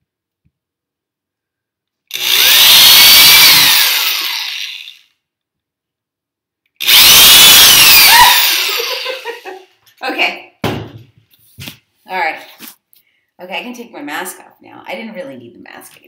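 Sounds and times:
electric drill whine: 2.1s - 5.1s, 6.8s - 9.5s.

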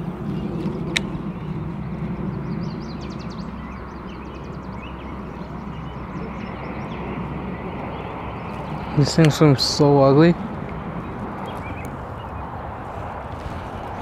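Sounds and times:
songbird trilling: 2.3s - 10.0s, 10.7s - 12.5s.

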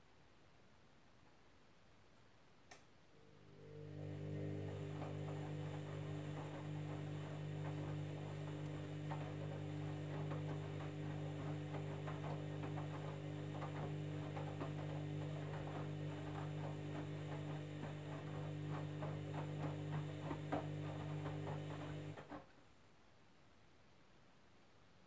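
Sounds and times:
washing machine drum motor humming: 3.2s - 22.4s.

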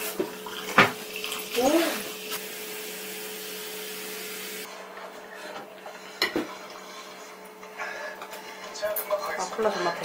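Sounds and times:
cola pouring and fizzing: 0.0s - 4.7s.

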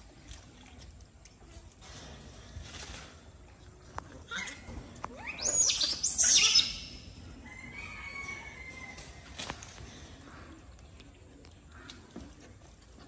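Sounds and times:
macaque screeching: 4.3s - 7.0s.

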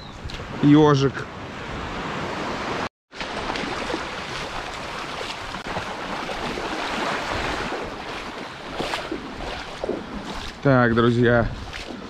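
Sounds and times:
sea surf washing ashore: 0.4s - 12.0s
wind on microphone: 4.4s - 12.0s.

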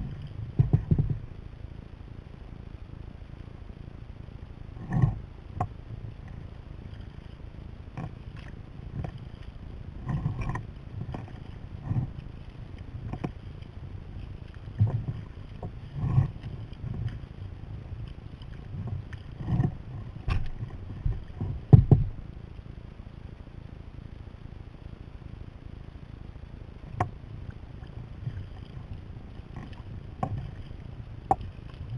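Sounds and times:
wind: 0.0s - 31.9s
kayak paddle splashing: 6.3s - 22.4s, 26.9s - 31.9s.

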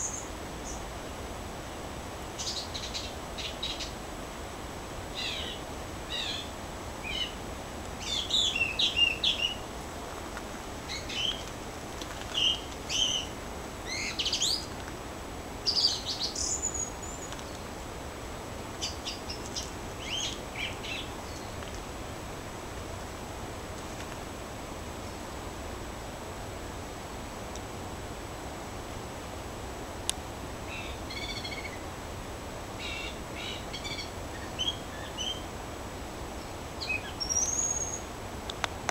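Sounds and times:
songbirds chirping and whistling: 0.0s - 0.8s, 8.0s - 9.7s, 10.8s - 11.5s, 12.3s - 14.7s, 15.6s - 17.8s, 18.8s - 21.7s, 32.8s - 35.5s, 36.8s - 38.1s
steady low hiss: 0.0s - 38.9s.

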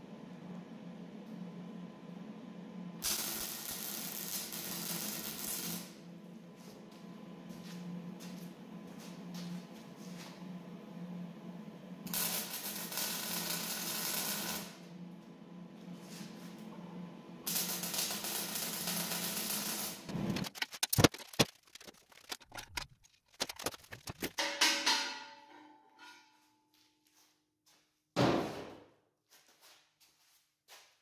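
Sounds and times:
low welder hum: 0.0s - 26.5s
welder arc crackling: 3.0s - 6.0s, 12.1s - 14.8s, 17.5s - 24.4s
metal clanks and taps: 24.3s - 26.4s.

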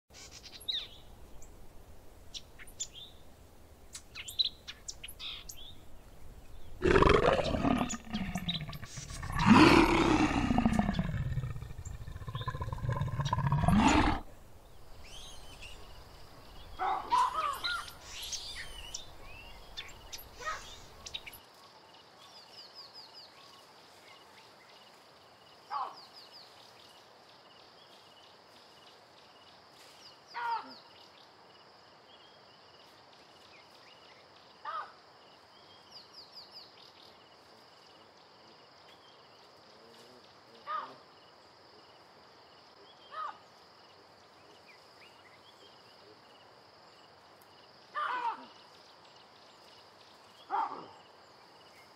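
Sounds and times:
bird chirps: 3.9s - 14.2s
loud animal roar: 6.8s - 14.3s.

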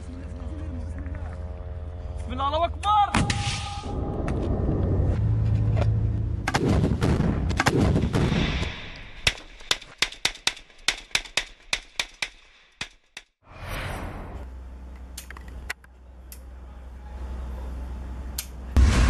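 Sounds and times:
sharp gunshots: 6.4s - 12.6s
deep rumbling blast: 18.8s - 19.0s.

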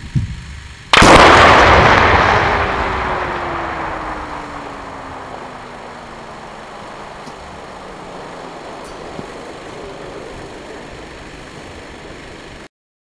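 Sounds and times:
fireworks mass explosion roar: 0.9s - 12.7s.

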